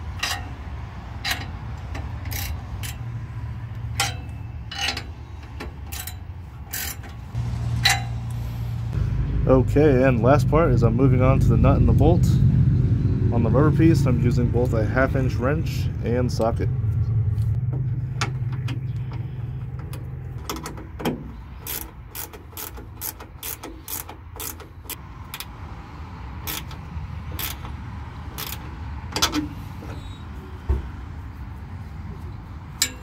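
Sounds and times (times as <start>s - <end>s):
low rumble: 7.3s - 20.3s
socket ratchet clicking: 21.6s - 25.5s, 26.4s - 29.3s.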